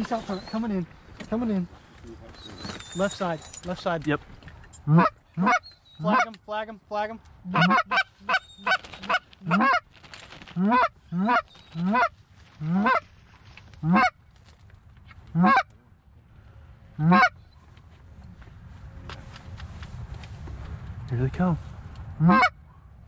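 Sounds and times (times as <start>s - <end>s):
goose call honks: 4.9s - 6.4s, 7.5s - 9.8s, 10.6s - 13.1s, 13.8s - 14.2s, 15.3s - 15.7s, 17.0s - 17.4s, 22.2s - 22.6s.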